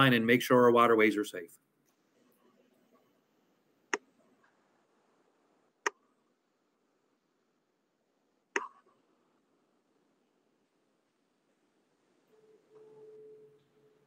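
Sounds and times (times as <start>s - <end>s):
faint room hiss: 0.0s - 14.0s
sharp clicks: 8.6s - 8.8s.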